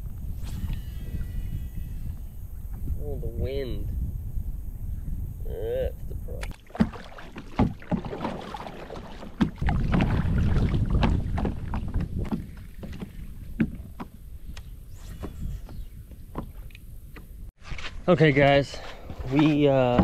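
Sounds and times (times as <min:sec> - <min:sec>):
knocks against kayak hull: 0:06.7 - 0:10.2.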